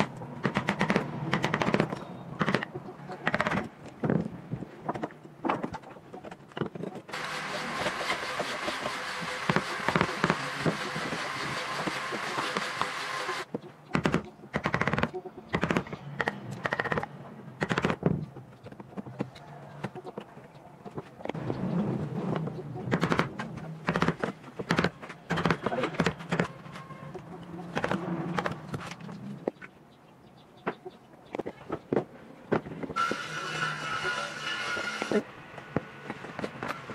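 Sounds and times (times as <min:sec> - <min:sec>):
chisel knocking and cracking wood: 0:22.9 - 0:26.6.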